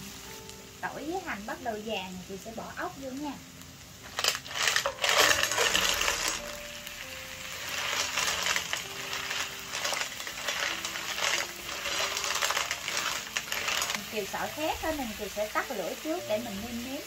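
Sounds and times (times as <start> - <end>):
frying sizzle: 0.0 - 17.0
shells clattering in a pan: 4.0 - 15.8.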